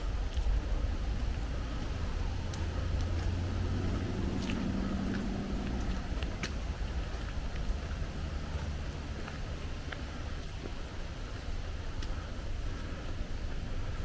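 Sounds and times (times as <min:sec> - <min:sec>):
distant motor vehicle hum: 0:00.0 - 0:14.0
low outdoor rumble: 0:00.0 - 0:14.0.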